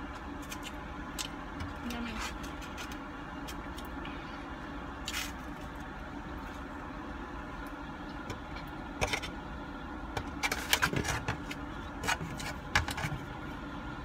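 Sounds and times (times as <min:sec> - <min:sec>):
plastic fork scraping foam box: 0:10.2 - 0:13.2.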